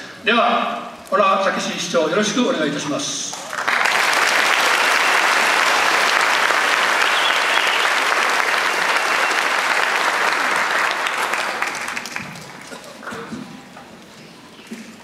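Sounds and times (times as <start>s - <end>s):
audience applauding: 3.3s - 13.2s.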